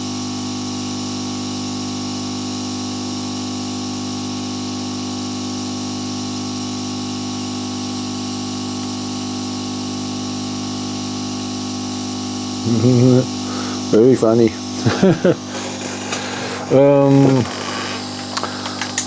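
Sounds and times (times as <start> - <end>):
machine hum: 8.9 - 19.0.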